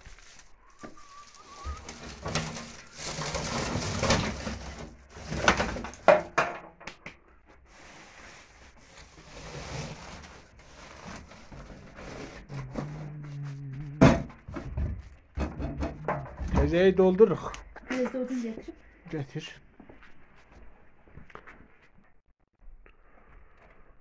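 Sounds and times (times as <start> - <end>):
dry twigs rustling and crackling: 0.0 - 6.0.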